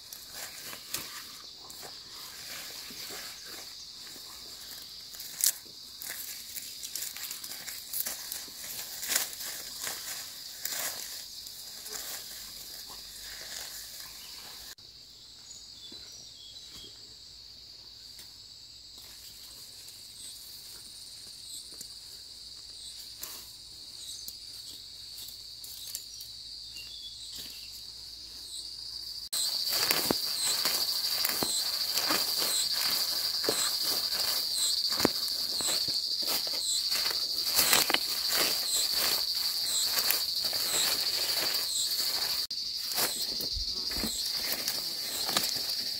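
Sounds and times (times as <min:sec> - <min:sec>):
rustle of weeds being pulled: 0:00.0 - 0:14.8, 0:29.4 - 0:45.9
insects trilling: 0:00.0 - 0:45.9.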